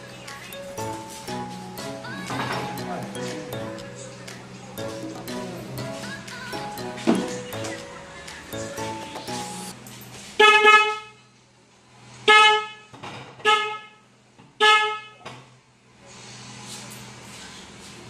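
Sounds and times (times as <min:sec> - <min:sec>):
motorcycle horn beeping: 0:10.4 - 0:11.3, 0:12.2 - 0:15.2.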